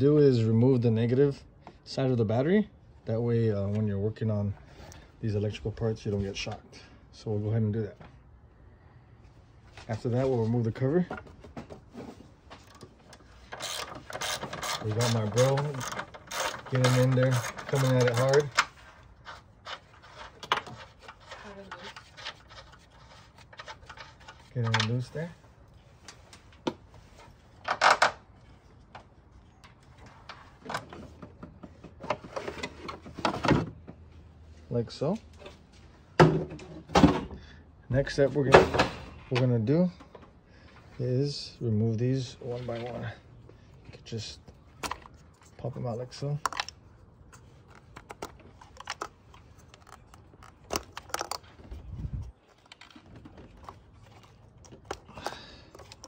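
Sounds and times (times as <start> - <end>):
plastic scraping rustle: 44.8 - 56.0
plastic connectors clicking and snapping: 46.4 - 46.8, 47.4 - 51.6.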